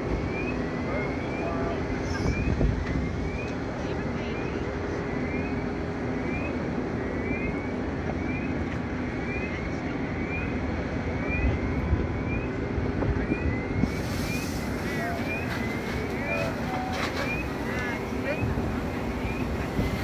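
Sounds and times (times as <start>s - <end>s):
engine rumble: 0.0s - 20.0s
fire hose water spraying: 13.8s - 20.0s.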